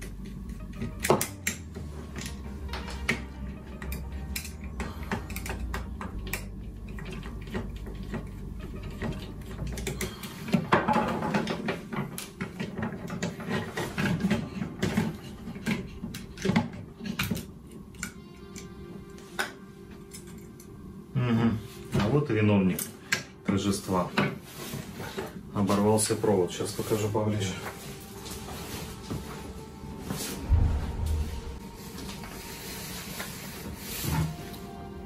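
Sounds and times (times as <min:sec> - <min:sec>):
low steady hum: 0:27.5 - 0:35.0.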